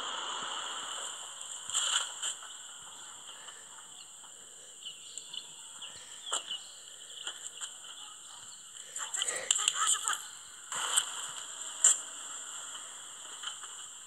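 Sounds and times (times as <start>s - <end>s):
bird chirps: 3.8s - 8.8s.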